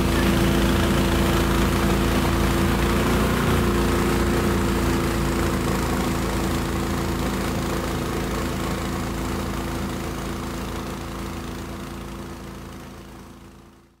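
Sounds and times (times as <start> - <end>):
water rushing: 0.0 - 9.8
boat engine running: 0.0 - 13.4.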